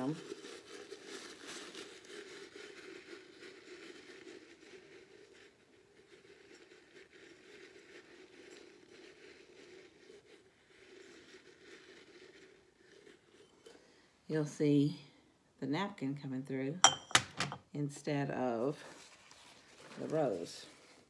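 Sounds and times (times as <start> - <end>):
paper napkin rustling and scraping: 18.8 - 21.0.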